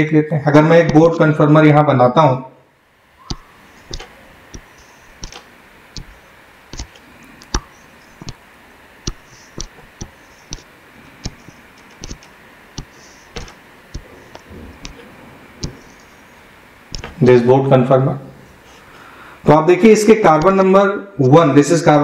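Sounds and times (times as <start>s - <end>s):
stylus tapping on drawing tablet: 3.3s - 5.4s, 6.0s - 6.2s, 6.8s - 8.4s, 9.1s - 15.0s, 15.6s - 16.0s, 16.9s - 17.2s.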